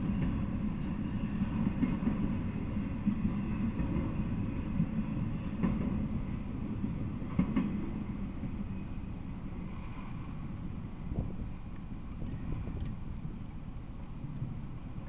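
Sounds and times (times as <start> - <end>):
freight train rolling on rails: 0.0 - 15.0
sharp knock of train: 5.6 - 6.0, 7.3 - 7.9.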